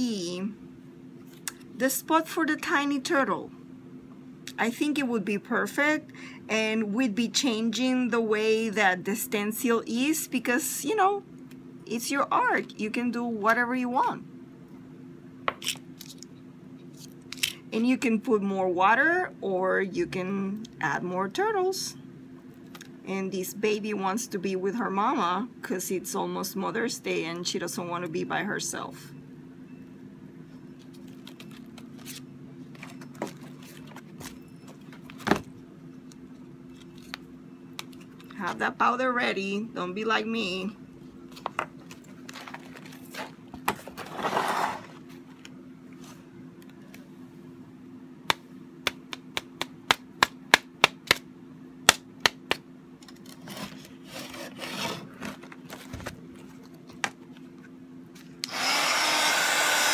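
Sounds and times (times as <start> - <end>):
steady low hum: 0.0 - 59.9
rubbing and scraping: 42.4 - 45.0, 53.4 - 55.9.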